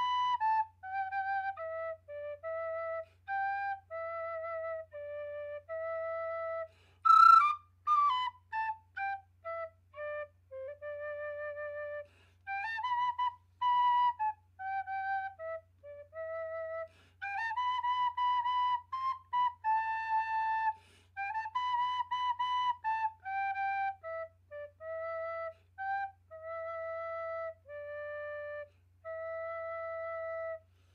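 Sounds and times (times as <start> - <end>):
recorder melody: 0.0 - 1.6.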